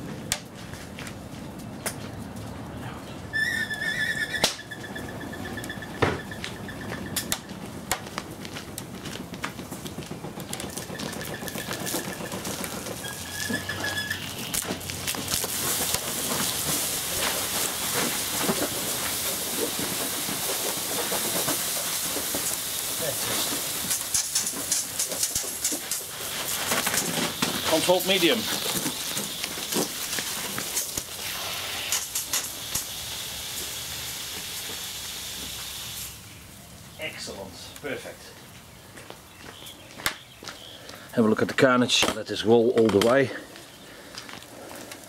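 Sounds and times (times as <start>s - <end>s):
thin high whistle: 3.3s - 7.3s
burning television crackling: 3.9s - 45.0s
hose spraying water into steam: 10.6s - 36.4s
sharp pops: 14.4s - 33.0s.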